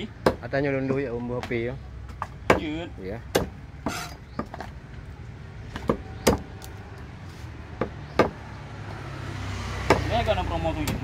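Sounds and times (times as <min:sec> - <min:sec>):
cleaver chopping on wooden block: 0:00.2 - 0:00.5, 0:01.4 - 0:04.7, 0:05.7 - 0:06.5, 0:07.8 - 0:08.4, 0:09.8 - 0:10.1.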